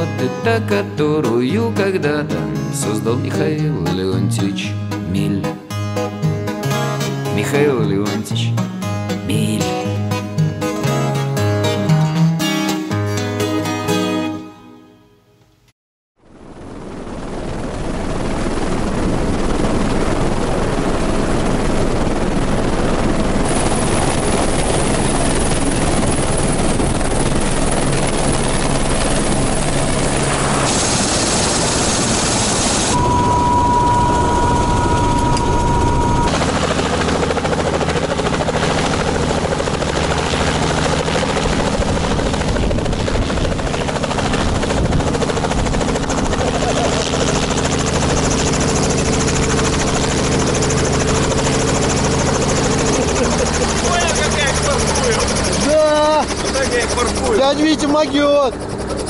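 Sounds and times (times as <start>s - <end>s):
high whine: 16.3s - 39.0s
helicopter engine and rotor: 16.3s - 59.0s
steady high tone: 30.5s - 36.8s, 51.7s - 58.6s.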